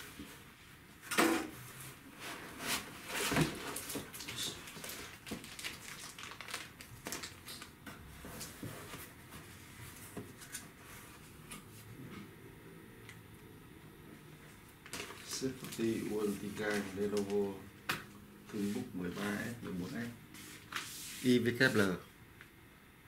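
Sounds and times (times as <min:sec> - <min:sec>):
cardboard and plastic rustling: 0:01.9 - 0:11.4, 0:14.8 - 0:17.6.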